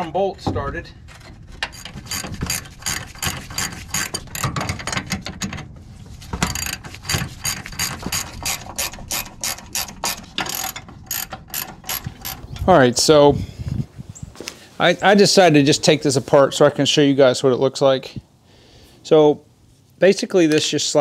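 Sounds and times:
ratchet wrench clicking: 0:06.5 - 0:12.4.

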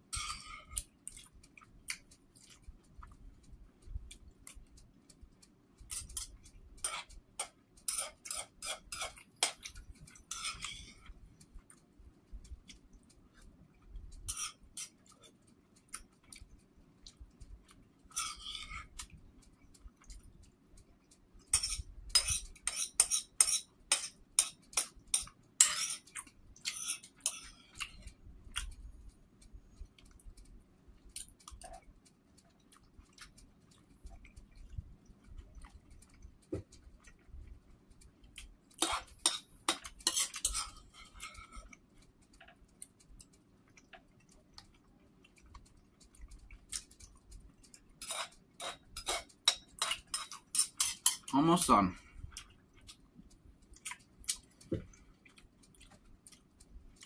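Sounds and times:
metal spoon scraping a bowl: 0:00.1 - 0:00.8, 0:05.9 - 0:11.1, 0:14.3 - 0:15.0, 0:18.1 - 0:19.0, 0:21.5 - 0:27.6, 0:38.8 - 0:41.8, 0:48.0 - 0:51.3.

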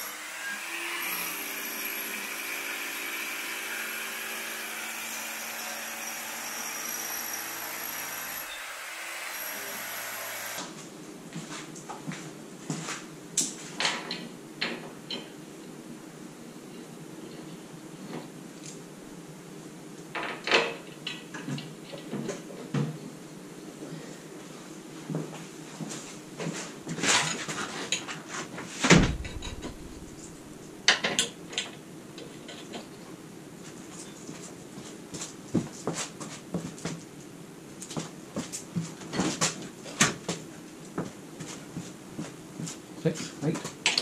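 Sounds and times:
heavy thud: 0:28.8 - 0:30.7.

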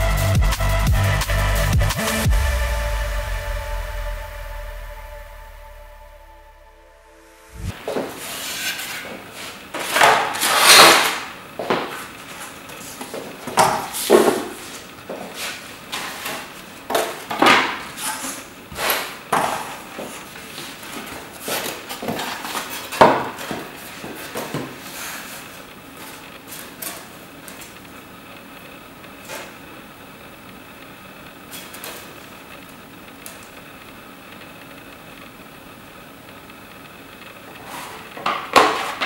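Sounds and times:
craft knife cutting foam board: 0:07.7 - 0:12.5, 0:13.5 - 0:27.8.

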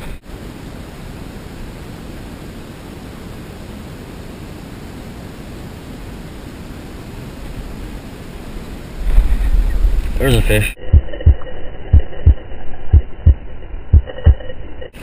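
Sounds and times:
wind on microphone: 0:03.4 - 0:14.5.

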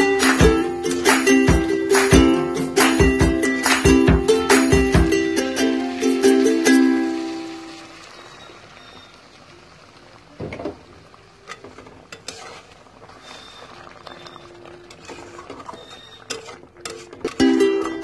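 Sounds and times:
gravy bubbling and sizzling: 0:00.0 - 0:18.0
spatula stirring and scraping: 0:11.4 - 0:18.0.

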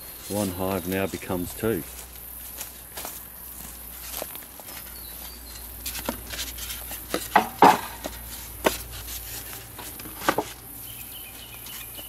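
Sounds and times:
high drone of insects: 0:00.0 - 0:12.0
sharp knocks and rustles: 0:00.0 - 0:12.0.

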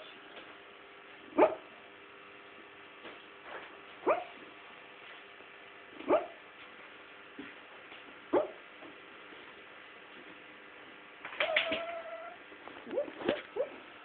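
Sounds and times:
dog yipping in sleep: 0:01.4 - 0:01.7, 0:04.0 - 0:04.4, 0:06.1 - 0:06.4, 0:08.3 - 0:08.6, 0:11.4 - 0:13.8.

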